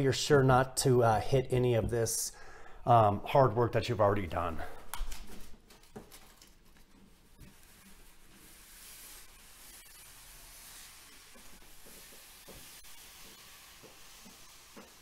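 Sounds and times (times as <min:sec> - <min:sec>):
backing paper peeling hiss: 0:06.2 - 0:15.0.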